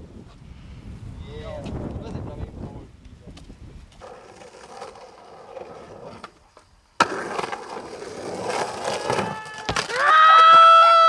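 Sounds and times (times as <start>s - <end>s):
skateboard wheels rolling on concrete: 1.4s - 11.0s.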